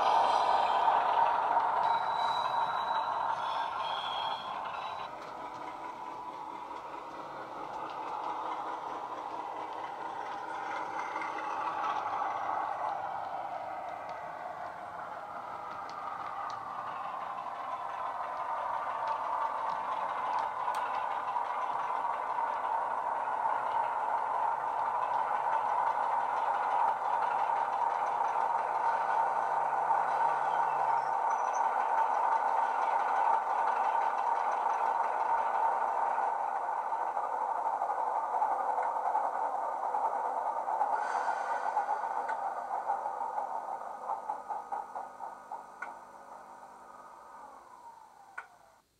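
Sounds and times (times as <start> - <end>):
thin high tone: 0.0 - 6.1
model train wheels rattling: 0.0 - 48.7.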